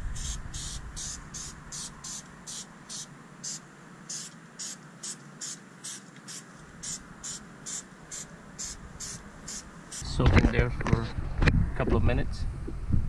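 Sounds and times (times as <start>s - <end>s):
aerosol can spraying: 0.1s - 10.0s.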